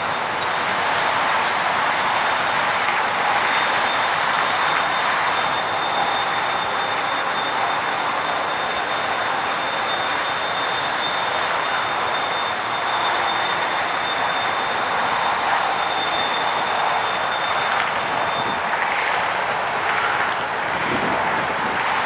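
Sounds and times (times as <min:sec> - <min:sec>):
freeway traffic rushing: 0:00.0 - 0:22.0
thin steady high tone: 0:03.4 - 0:18.6.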